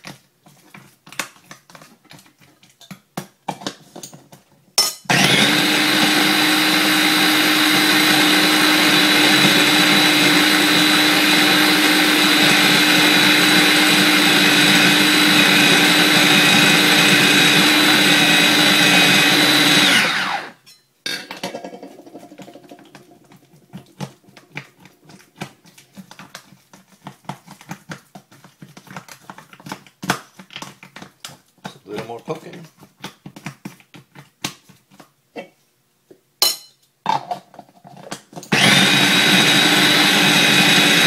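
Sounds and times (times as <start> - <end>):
food processor running: 5.1 - 20.6, 38.4 - 41.0.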